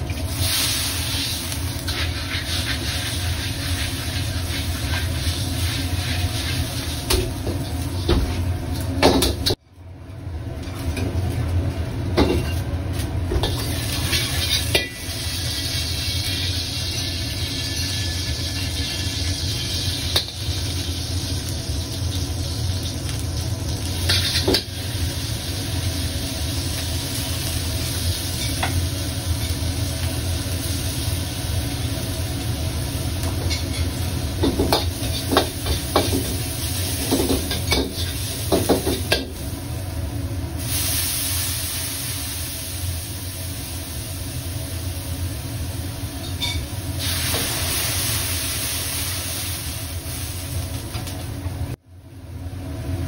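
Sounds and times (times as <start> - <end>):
aromatics sizzling in oil: 0.0 - 9.6, 10.6 - 51.8
gas burner low roar: 0.0 - 53.0.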